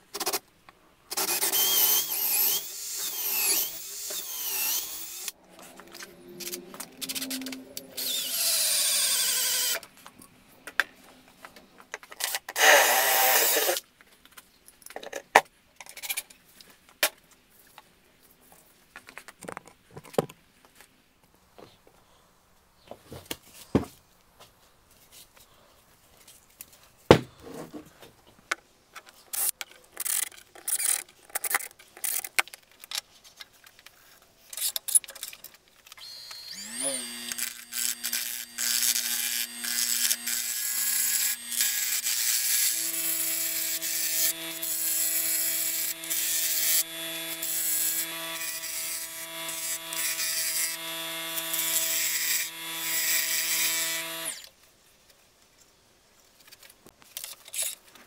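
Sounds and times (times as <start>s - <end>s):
wood lathe motor whine: 36.0s - 54.4s.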